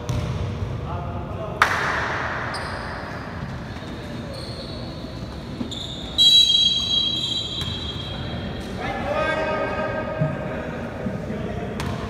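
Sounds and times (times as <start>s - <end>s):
referee's whistle: 5.7s - 8.6s.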